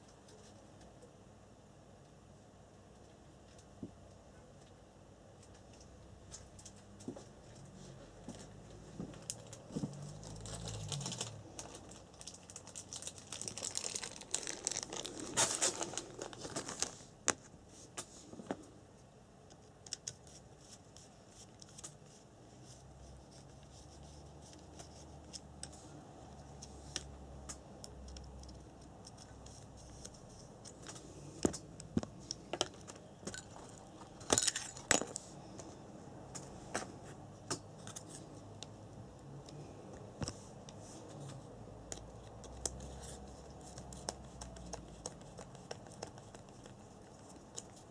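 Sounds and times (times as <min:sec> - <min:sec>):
rustling: 0:09.1 - 0:17.1.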